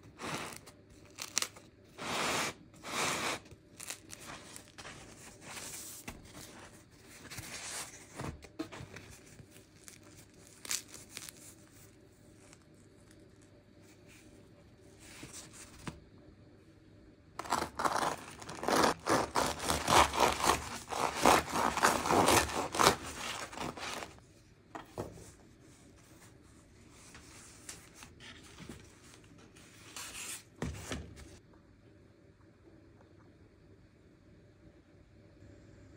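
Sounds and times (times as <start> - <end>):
knife sawing through bread crust: 17.4 - 24.1.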